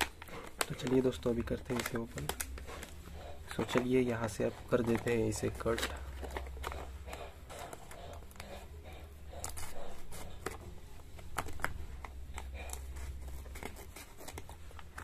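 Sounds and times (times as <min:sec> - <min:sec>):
scissors snipping plastic: 0:00.0 - 0:03.0
plastic crinkling: 0:00.0 - 0:08.6, 0:09.4 - 0:15.0.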